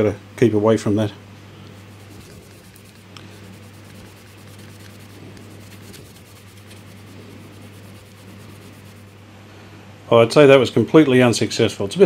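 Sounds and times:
steady low hum: 0:01.0 - 0:10.2
cloth rubbing on plastic: 0:01.8 - 0:09.2.

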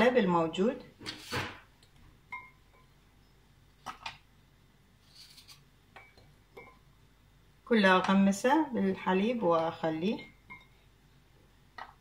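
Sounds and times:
glassy clink: 0:02.3 - 0:02.6.

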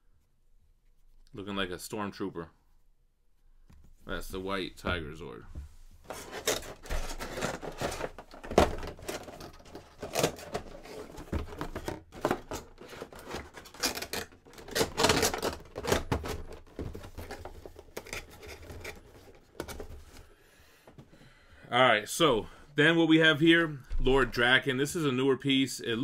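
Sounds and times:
packaging rustling: 0:06.0 - 0:20.2.

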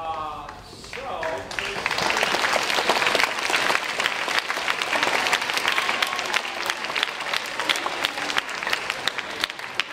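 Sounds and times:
audience applauding: 0:00.8 - 0:09.9.

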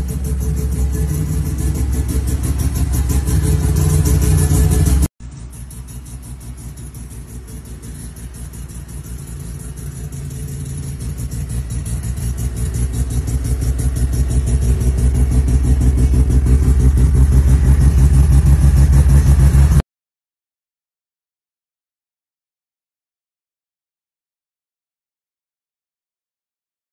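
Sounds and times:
rotary engine idling: 0:00.0 - 0:19.8.

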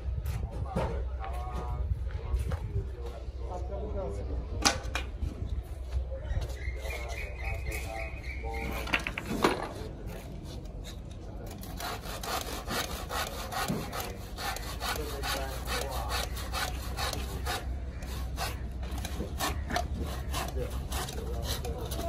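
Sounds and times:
hand saw cutting timber: 0:09.7 - 0:22.0.

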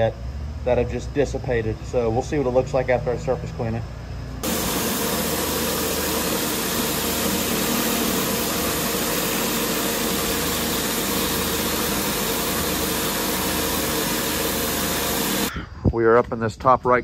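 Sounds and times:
pressure washer engine running: 0:04.4 - 0:15.5
water spraying hiss: 0:04.4 - 0:15.5.

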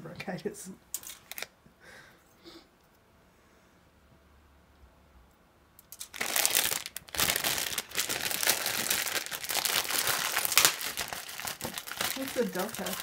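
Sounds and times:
plastic bags crinkling: 0:05.9 - 0:13.0.

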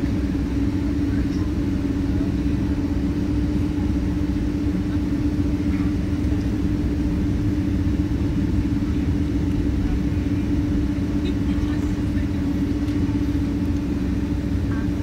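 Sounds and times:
aircraft engines rumbling at idle: 0:00.0 - 0:15.0
constant droning tone: 0:00.0 - 0:15.0.

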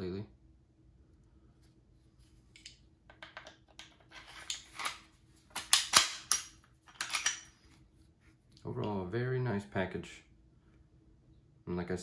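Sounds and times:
pistol parts clicking: 0:02.6 - 0:07.5.

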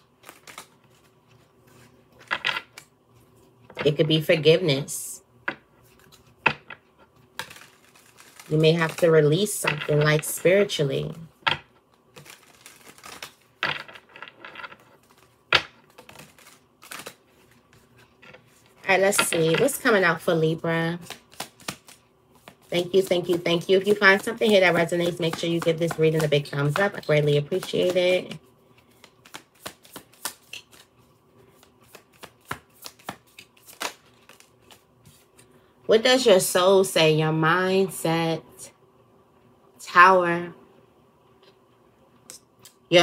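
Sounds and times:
cards being shuffled: 0:00.0 - 0:04.0, 0:05.8 - 0:11.2, 0:11.9 - 0:35.5.

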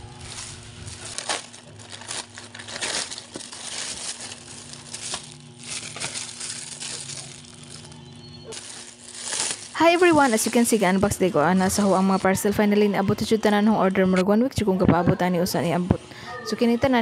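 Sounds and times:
plastic packaging crinkling: 0:00.0 - 0:13.2.

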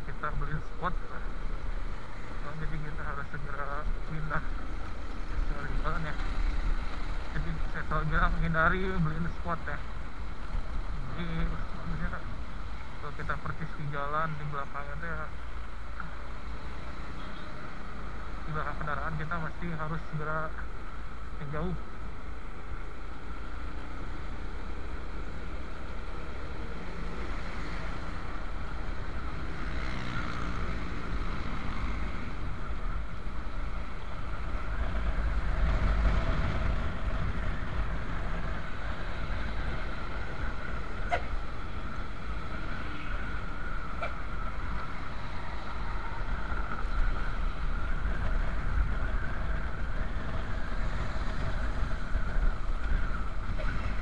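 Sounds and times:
road noise: 0:00.0 - 0:54.0
wind rushing over microphone: 0:27.8 - 0:54.0.

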